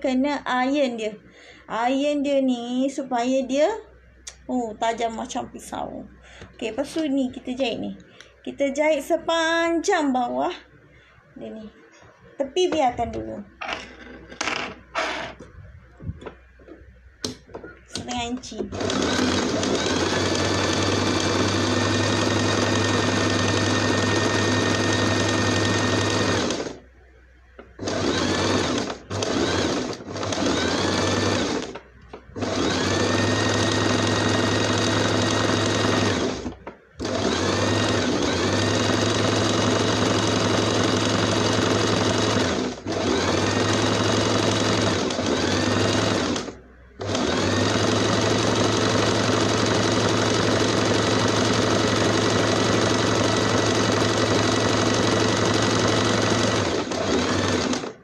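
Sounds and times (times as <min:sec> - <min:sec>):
sewing machine stitching: 0:17.9 - 0:26.8, 0:27.8 - 0:31.8, 0:32.4 - 0:58.0.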